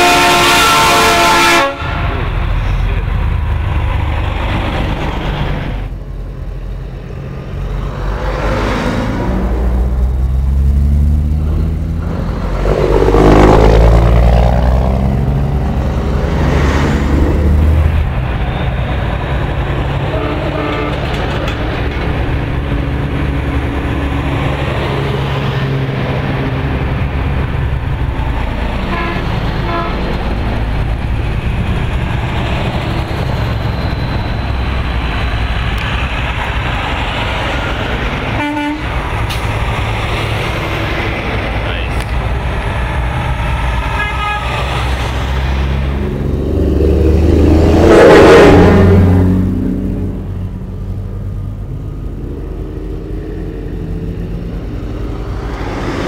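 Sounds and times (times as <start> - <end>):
truck horn toots: 0.0 - 2.2, 20.1 - 21.1, 28.9 - 30.2, 38.4 - 39.0, 43.9 - 44.7
trucks driving past: 0.0 - 56.0.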